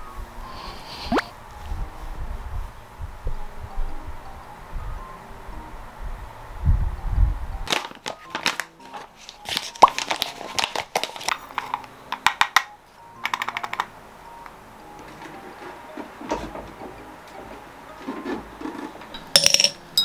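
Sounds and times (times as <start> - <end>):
coffee equipment clattering: 18.0 - 20.0.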